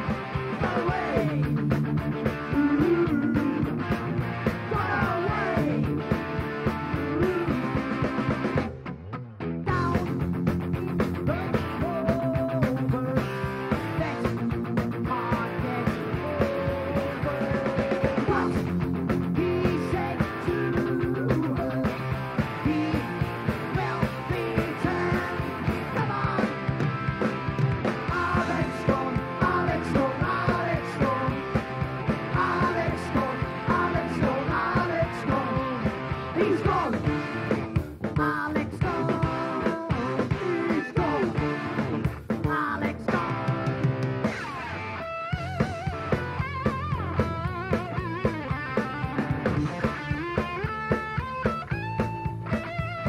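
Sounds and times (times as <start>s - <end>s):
drums driving beat: 0.0s - 9.0s, 9.7s - 53.0s
electric bass: 0.0s - 53.0s
person singing: 0.6s - 1.6s, 2.4s - 3.9s, 4.6s - 6.2s, 6.9s - 8.6s, 9.7s - 10.2s, 10.8s - 26.8s, 28.1s - 31.6s, 32.2s - 37.3s, 38.2s - 43.8s.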